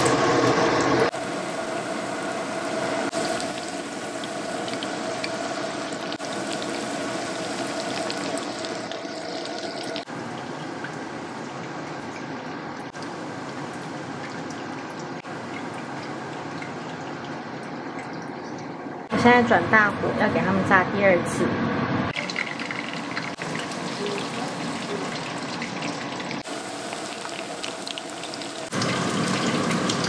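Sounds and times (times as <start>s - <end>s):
meat sizzling in hot oil: 0.0s - 11.2s, 22.1s - 30.0s.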